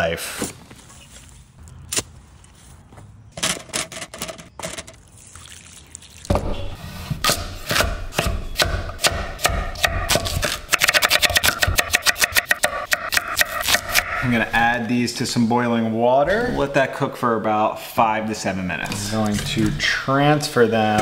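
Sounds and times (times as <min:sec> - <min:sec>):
knife chopping potatoes on board: 0:07.3 - 0:14.1.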